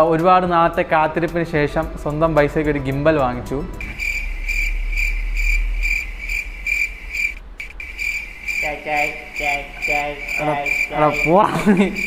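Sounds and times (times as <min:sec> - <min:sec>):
cricket chirping: 0:03.8 - 0:12.0
man laughing: 0:11.2 - 0:12.0.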